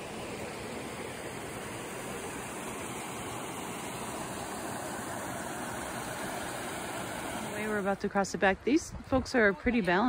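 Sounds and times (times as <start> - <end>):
water pouring through cascade: 0.0 - 8.0.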